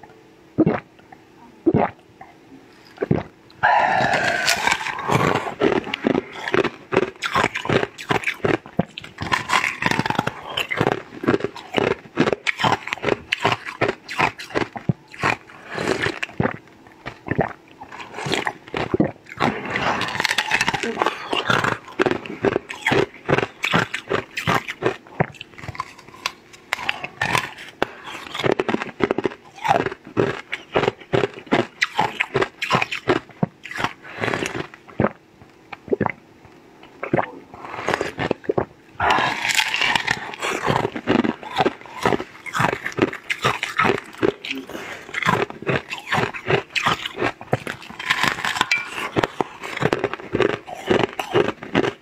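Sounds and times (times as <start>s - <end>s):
slurping: 2.8s - 8.2s
wet chewing and lip-smacking: 2.8s - 52.0s.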